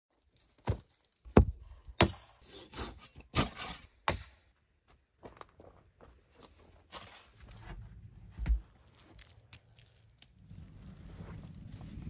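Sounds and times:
heavy knocks on logs: 0.6s - 2.2s.

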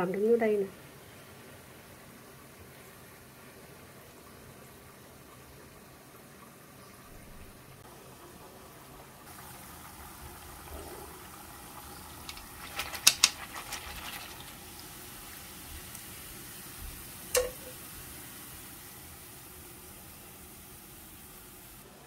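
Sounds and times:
batter sizzling in hot oil: 7.8s - 21.9s.

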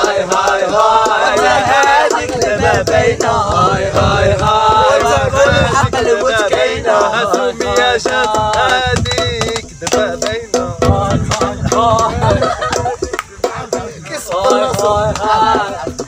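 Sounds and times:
young men chanting together: 0.0s - 16.0s
hand claps: 6.4s - 16.0s.

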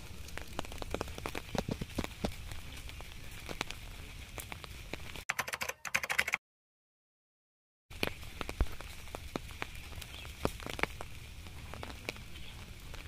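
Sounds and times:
rain on wet paving: 0.0s - 5.2s, 7.9s - 13.0s.

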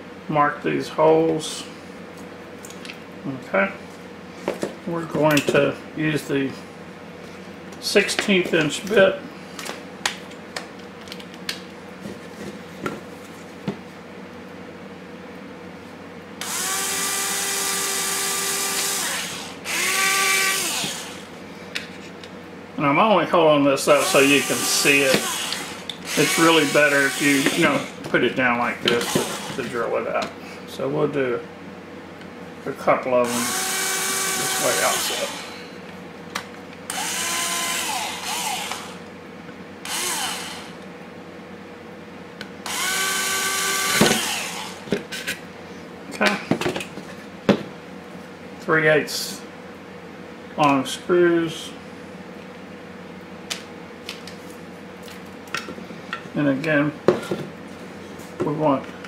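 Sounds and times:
cordless drill motor whining: 16.4s - 21.3s, 24.0s - 28.0s, 29.0s - 29.7s, 33.2s - 35.7s, 36.9s - 39.0s, 39.8s - 40.8s, 42.6s - 44.9s.

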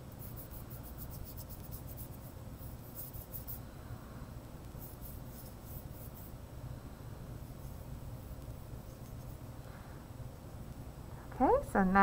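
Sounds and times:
brush strokes on paper: 0.0s - 3.7s, 4.7s - 6.4s
low steady hum: 0.0s - 12.0s.

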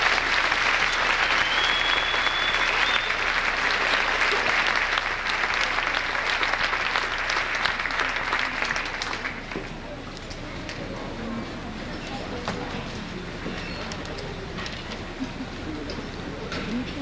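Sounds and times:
audience applauding: 0.0s - 9.9s
high whistle: 1.2s - 3.3s.

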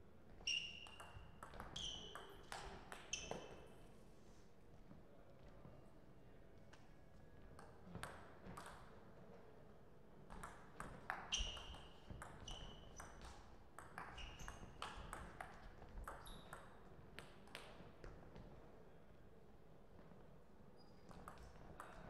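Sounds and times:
table tennis ball pinging: 10.4s - 17.4s.

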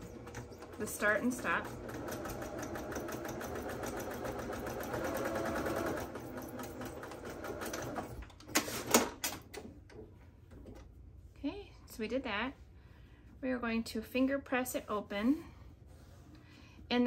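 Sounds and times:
sewing machine stitching: 0.0s - 9.4s.

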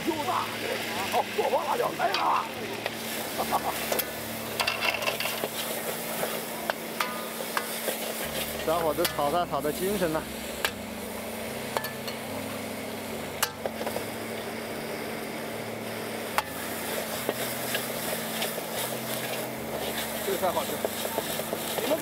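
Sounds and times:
food sizzling in a wok: 0.0s - 22.0s
steady hum: 0.0s - 22.0s
metal spatula clanking on wok: 3.9s - 5.5s, 6.7s - 9.3s, 11.7s - 12.3s.

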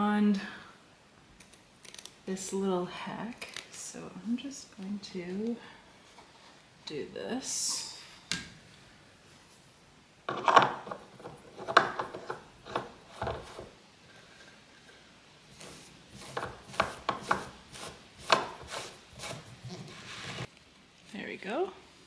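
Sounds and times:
wooden leg scraping against fabric: 15.6s - 20.5s.

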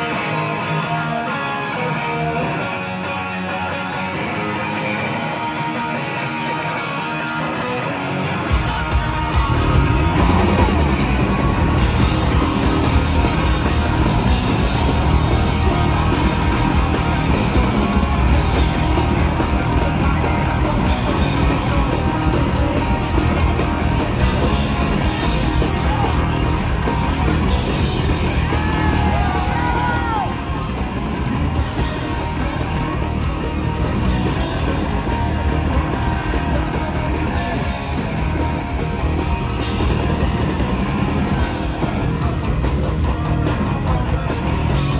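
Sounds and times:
bass guitar: 0.0s - 44.9s
drums: 0.0s - 44.9s
electric guitar: 0.0s - 44.9s
person singing: 18.3s - 30.4s, 31.7s - 39.0s, 41.0s - 44.9s.

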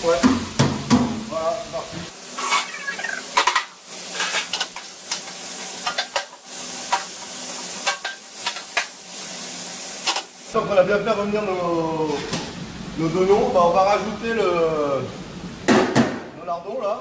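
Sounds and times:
onions sizzling in fat: 0.0s - 10.6s.

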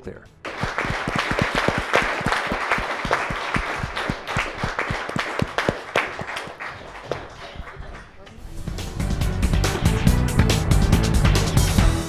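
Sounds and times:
audience applauding: 0.4s - 8.3s.

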